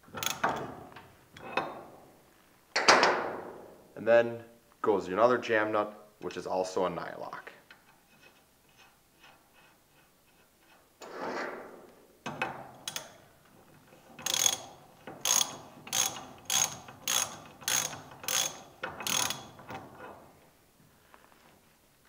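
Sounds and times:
ratchet wrench clicking: 0:14.2 - 0:19.6
faint ticks of nut threading: 0:14.2 - 0:19.8.

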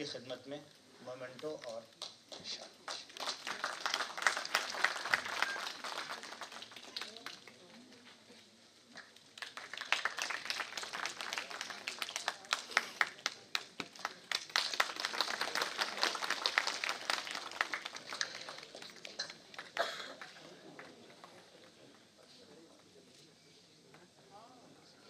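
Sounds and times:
audience applauding: 0:02.8 - 0:07.6, 0:09.0 - 0:21.3.

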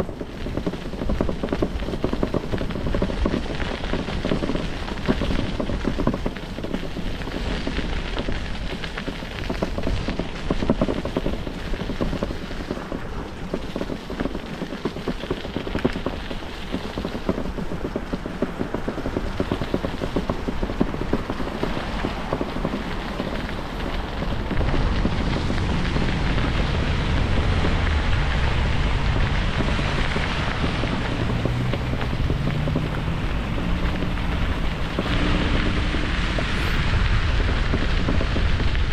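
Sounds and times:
bicycle tyre noise: 0:00.0 - 0:38.9
wind buffeting microphone: 0:00.0 - 0:38.9
deep rumble: 0:18.9 - 0:38.9.

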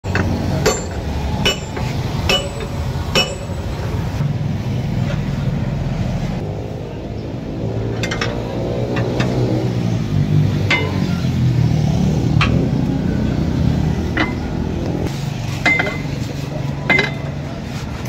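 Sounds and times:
low engine hum: 0:00.0 - 0:18.0
hammer striking metal rim: 0:00.1 - 0:03.8, 0:10.6 - 0:11.4, 0:14.1 - 0:14.5, 0:15.6 - 0:16.2, 0:16.9 - 0:17.4.

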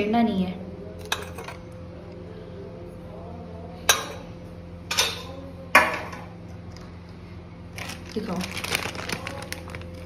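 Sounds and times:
steady low hum: 0:00.0 - 0:10.0
spoon clinking against dishes: 0:01.0 - 0:01.6, 0:03.8 - 0:04.3, 0:04.9 - 0:05.4.

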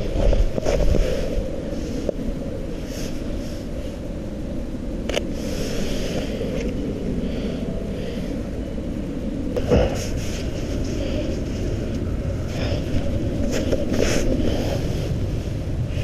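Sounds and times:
low outdoor rumble: 0:00.0 - 0:16.0.

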